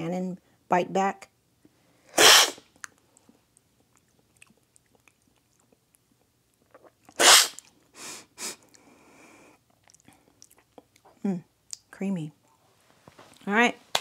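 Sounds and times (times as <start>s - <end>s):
loud coffee slurp: 2.2s - 2.6s, 6.8s - 7.6s.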